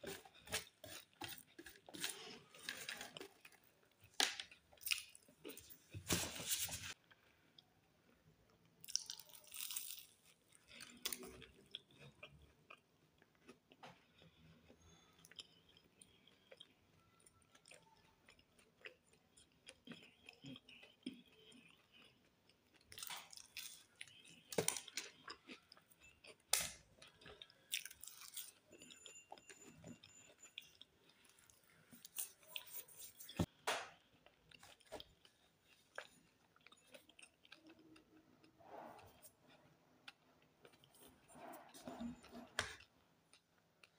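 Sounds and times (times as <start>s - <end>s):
soft chewing mouth sounds: 6.9s - 43.9s
crisp pastry crunches: 8.8s - 12.8s, 17.6s - 28.7s.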